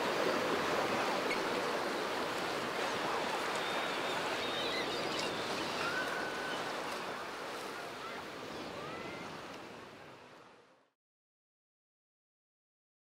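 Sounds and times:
sea surf washing on beach: 0.0s - 10.7s
faint high calls: 3.6s - 6.9s.

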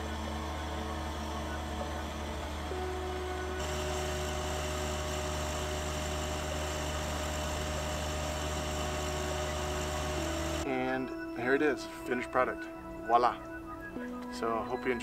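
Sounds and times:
tractor engine running: 0.0s - 11.0s.

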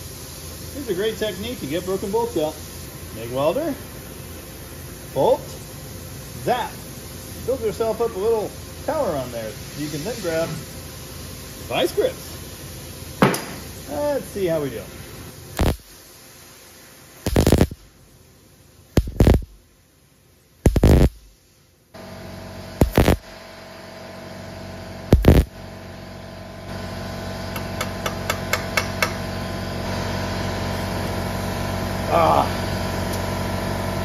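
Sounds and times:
steady hum: 0.0s - 19.8s, 20.6s - 30.1s
welder zapping: 15.5s - 16.1s, 17.2s - 17.9s, 18.9s - 19.6s, 20.6s - 21.3s, 22.8s - 23.4s, 25.0s - 25.6s.

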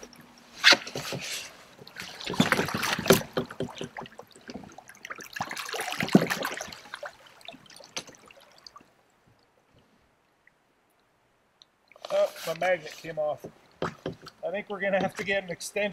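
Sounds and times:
water splashing against hull: 0.0s - 10.6s
plastic kayak knocking: 0.8s - 4.8s, 13.4s - 15.3s.

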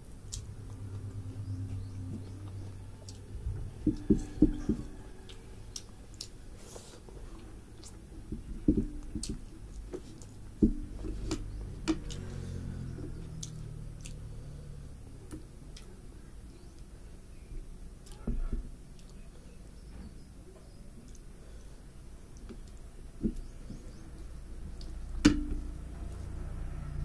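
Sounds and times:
person chewing food: 0.0s - 16.9s.

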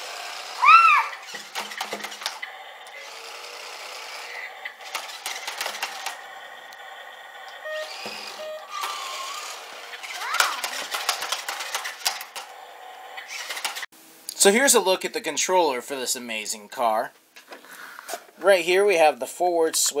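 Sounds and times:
toy car electric motors whirring: 0.0s - 13.9s
short electronic tones: 7.6s - 9.6s.

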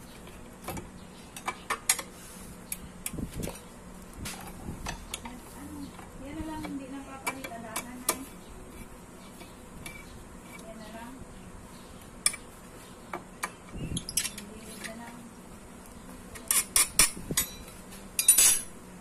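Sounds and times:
metal tools clinking: 16.4s - 18.7s.

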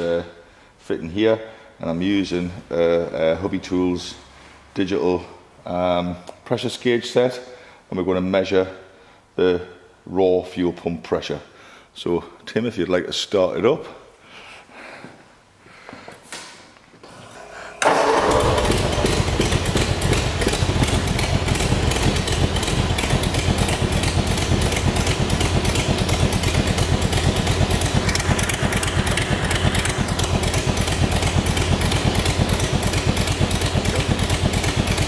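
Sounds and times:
engine starting and idling: 17.4s - 35.0s.

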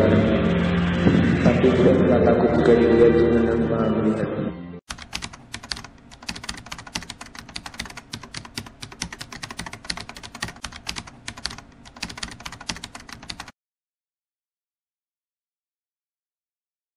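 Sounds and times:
computer keyboard typing: 4.9s - 13.6s.

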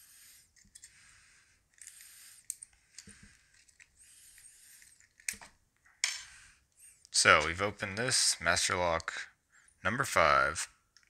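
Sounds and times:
small metallic clicks and scrapes: 0.5s - 1.0s, 1.7s - 6.3s.

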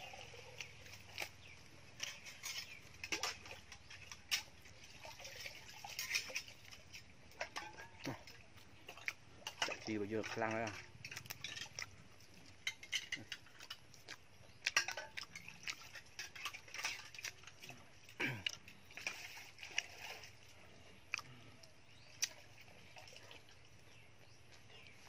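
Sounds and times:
wet chewing and lip-smacking: 6.5s - 9.4s, 11.0s - 25.0s.

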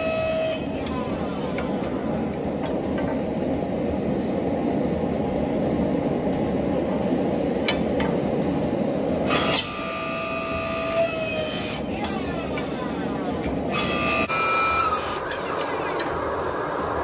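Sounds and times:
hydraulic pump motor whining: 9.2s - 12.8s
steady rushing noise: 15.7s - 17.0s.

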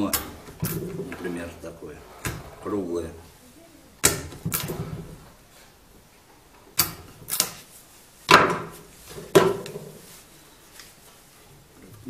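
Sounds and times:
sharp wooden knocks and cracks: 4.0s - 5.3s, 6.7s - 7.7s, 8.3s - 10.0s.

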